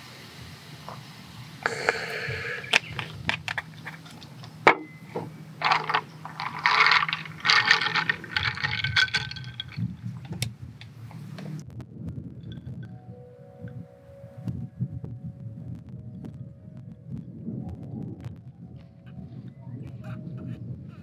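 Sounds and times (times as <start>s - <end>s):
ice cubes clinking in a glass: 5.6s - 9.9s.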